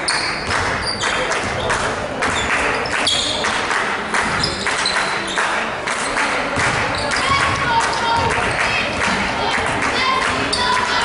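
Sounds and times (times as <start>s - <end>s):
sneakers squeaking on court: 0.0s - 3.4s, 4.3s - 8.5s
echoing voices: 0.0s - 11.0s
basketball bouncing: 6.5s - 9.8s.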